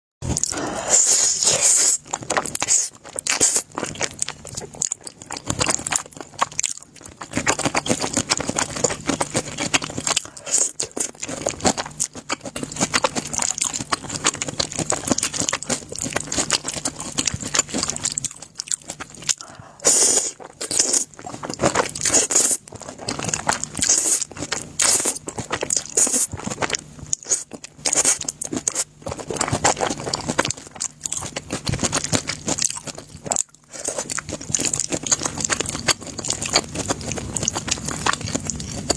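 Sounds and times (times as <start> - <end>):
noodle slurping: 0.4 - 6.5, 18.8 - 38.9
chewing with wet mouth smacks: 2.0 - 38.9.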